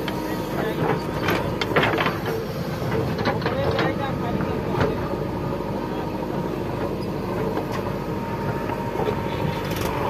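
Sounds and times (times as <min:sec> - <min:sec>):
diesel engine running: 0:00.0 - 0:10.0.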